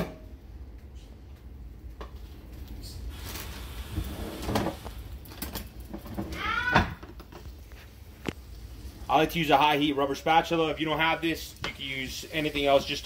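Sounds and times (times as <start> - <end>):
butter sizzling in a frying pan: 8.4 - 13.0.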